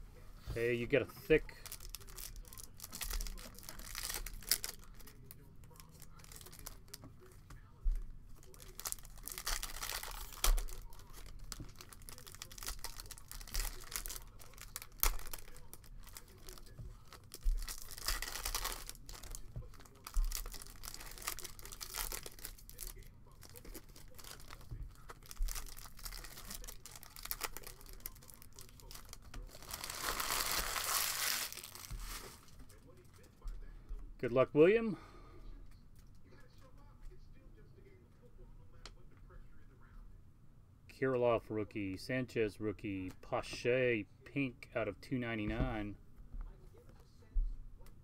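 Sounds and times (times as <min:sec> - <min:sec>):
foil wrapper tearing and crinkling: 0:01.5 - 0:07.0, 0:08.4 - 0:32.8
cards shuffling: 0:29.0 - 0:32.7.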